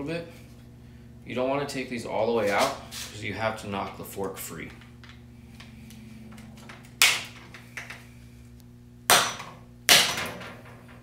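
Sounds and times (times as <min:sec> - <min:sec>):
hammer striking metal bolts: 0:09.1 - 0:11.0.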